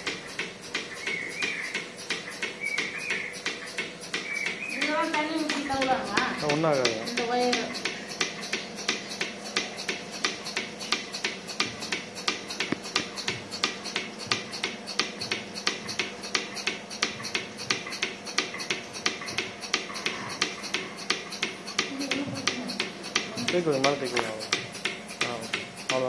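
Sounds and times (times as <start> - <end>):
milking pulsator clicking: 0.0 - 26.0
steady machine hum: 0.0 - 26.0.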